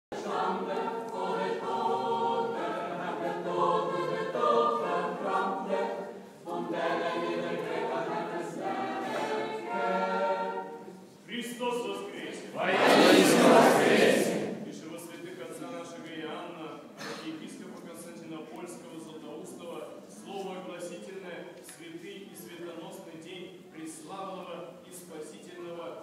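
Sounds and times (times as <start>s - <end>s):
choir singing a cappella chant: 0.1s - 11.1s, 12.3s - 14.6s.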